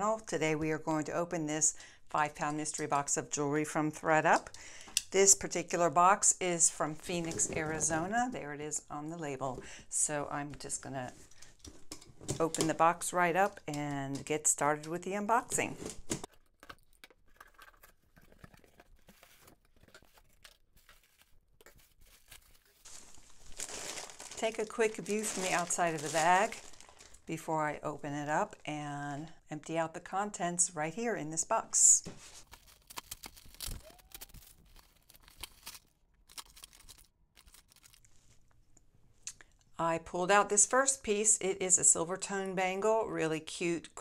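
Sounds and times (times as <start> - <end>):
plastic bag handled: 18.0 - 27.4, 32.1 - 38.3
cardboard flaps rustling: 18.2 - 27.1
tissue paper crinkling: 18.3 - 27.3, 32.2 - 38.0.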